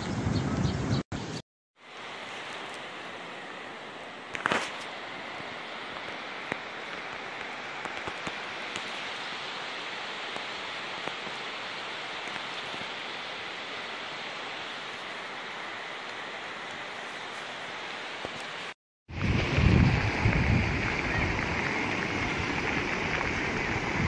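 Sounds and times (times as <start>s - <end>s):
crackle: 4.3s - 5.0s, 5.9s - 9.2s
water hissing: 19.1s - 24.0s.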